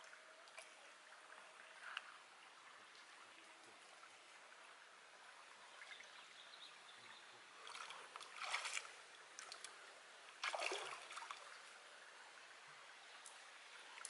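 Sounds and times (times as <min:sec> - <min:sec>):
stream trickling over rocks: 0:00.0 - 0:14.0
hands and feet splashing in water: 0:07.6 - 0:09.8, 0:10.4 - 0:11.5.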